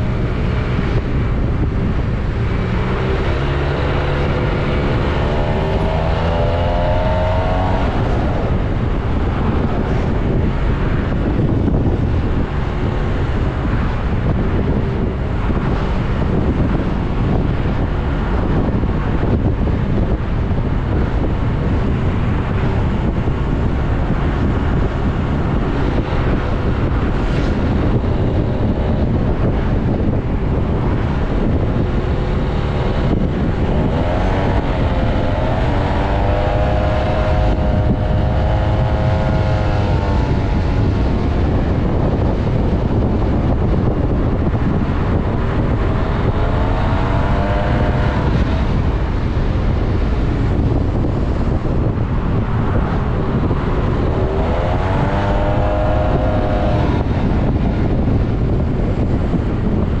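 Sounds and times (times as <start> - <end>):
heavy wind rush: 0.0 - 60.0
motorcycle engine accelerating: 0.0 - 60.0.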